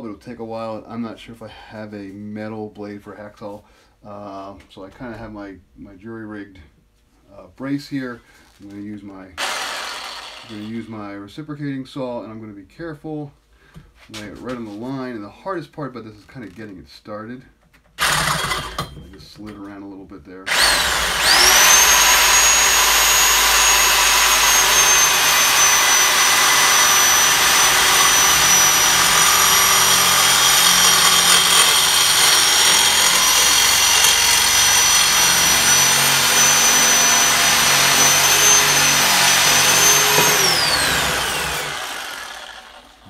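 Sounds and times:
reciprocating saw motor whine: 9.4 - 10.7, 20.5 - 43.0.

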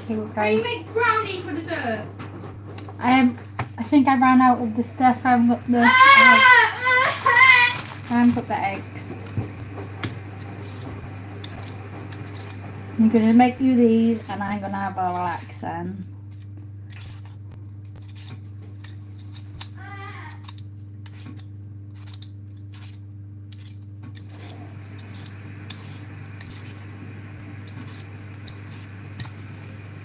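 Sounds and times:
steady low hum: 0.0 - 30.0
peeler scraping potato skin: 10.4 - 15.6, 16.3 - 26.9, 27.5 - 29.7.

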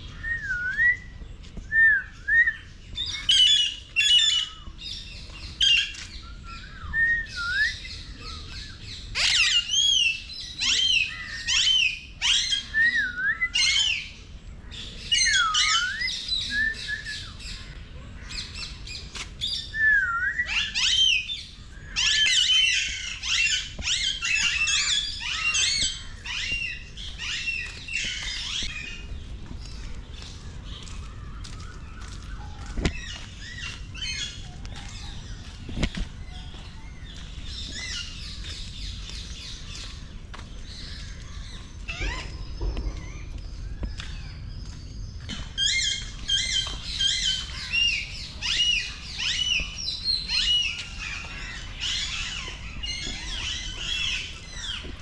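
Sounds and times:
many birds chirping: 0.0 - 55.0.

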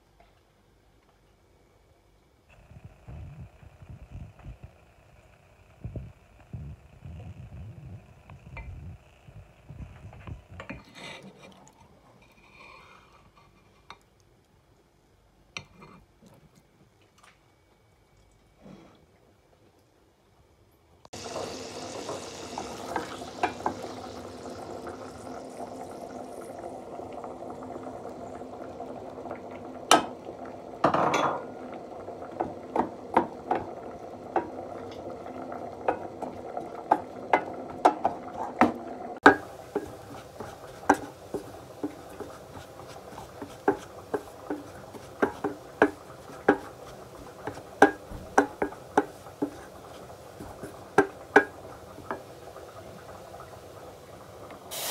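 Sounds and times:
butter sizzling: 21.2 - 54.9
wooden spatula knocking against pan: 39.2 - 52.2.

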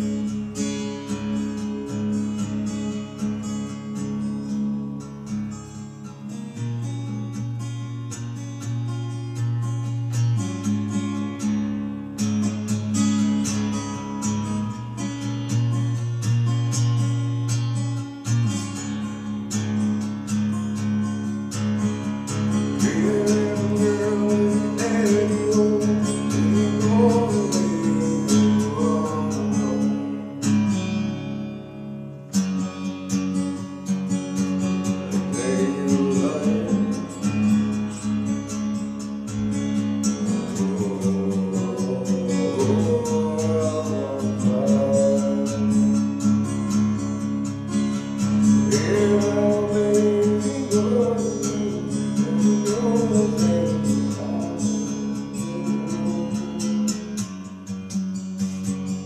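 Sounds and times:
acoustic guitar strumming chords: 0.0 - 59.0
person singing: 22.7 - 30.0, 35.1 - 37.6, 40.2 - 46.1, 48.6 - 57.1.

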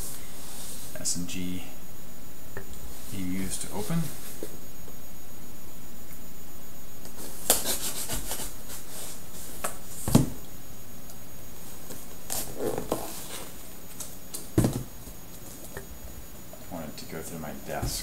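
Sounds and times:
box thumping on desk: 14.6 - 14.9.

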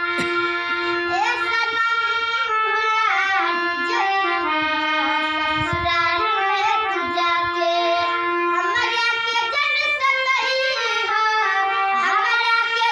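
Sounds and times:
harmonium chords: 0.0 - 12.9
girl singing: 0.4 - 12.9.

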